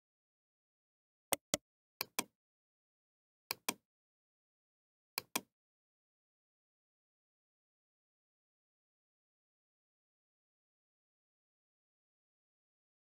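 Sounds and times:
mouse button clicking: 0:01.3 - 0:02.3, 0:05.2 - 0:05.5.

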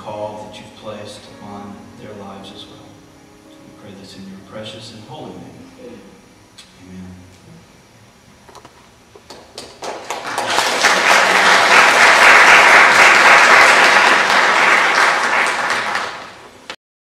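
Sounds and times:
congregation applauding: 0:09.3 - 0:16.8.

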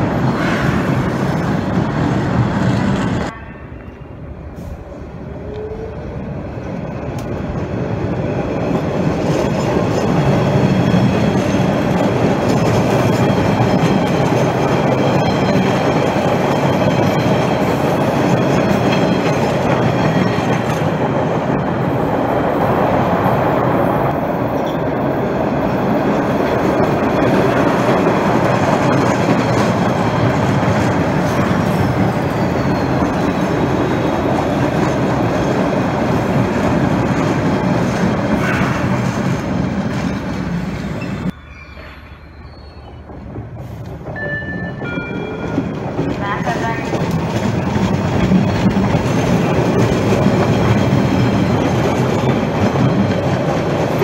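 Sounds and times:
subway train running on rails: 0:00.0 - 0:54.0
wheel squeals: 0:31.8 - 0:33.6, 0:40.9 - 0:43.3.

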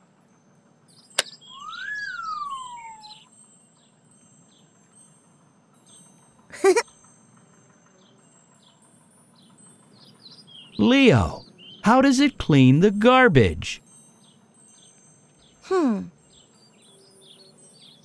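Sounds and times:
faint bird chirps: 0:00.9 - 0:05.0
loud falling-pitch sound: 0:01.5 - 0:03.3.

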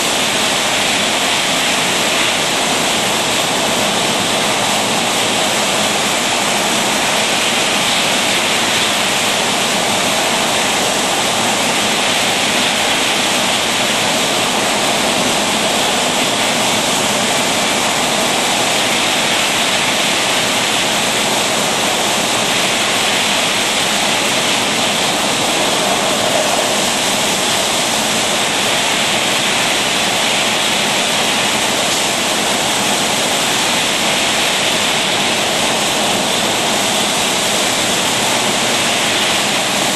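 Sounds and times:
bottle filler machine rushing: 0:07.1 - 0:28.9.

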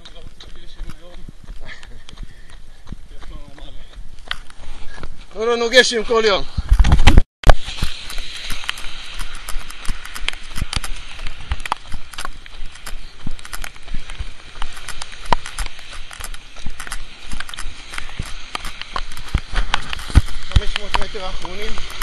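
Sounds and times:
wind: 0:00.0 - 0:22.0
rain: 0:07.5 - 0:22.0.

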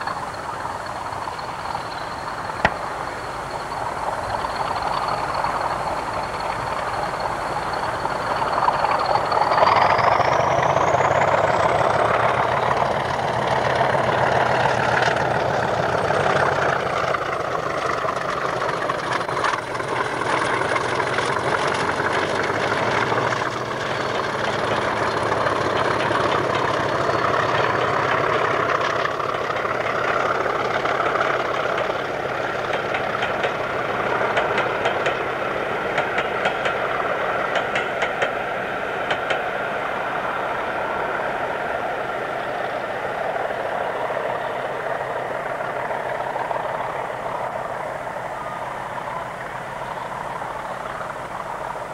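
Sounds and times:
high turbocharger whistle: 0:00.0 - 0:29.8
diesel locomotive engine drone: 0:00.0 - 0:51.9.

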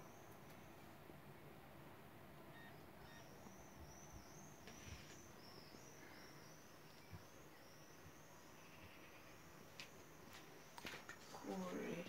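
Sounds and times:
faint high arching chirps: 0:02.5 - 0:10.8.

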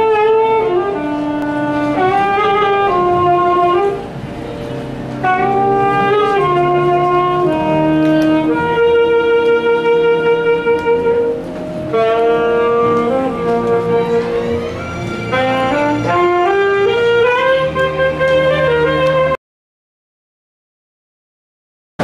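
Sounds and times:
slow wind instrument melody: 0:00.0 - 0:19.4.

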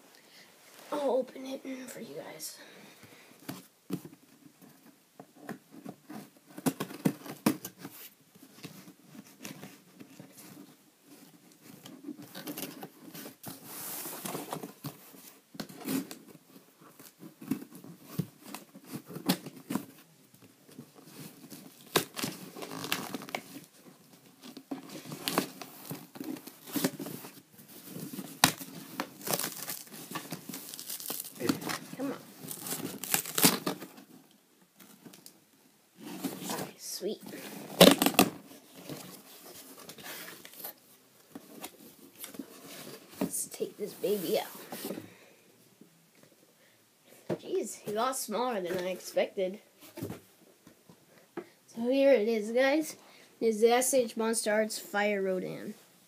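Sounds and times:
cardboard box tearing and crinkling: 0:24.8 - 0:33.9, 0:37.5 - 0:40.7.

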